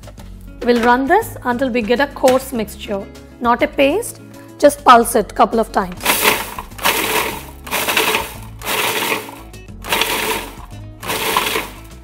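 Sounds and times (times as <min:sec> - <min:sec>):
food processor pulsing: 0:06.0 - 0:12.0.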